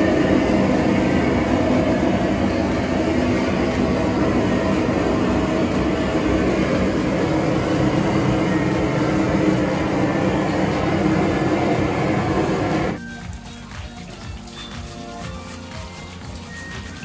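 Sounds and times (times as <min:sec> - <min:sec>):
gas torch flame rushing: 0:00.0 - 0:13.0.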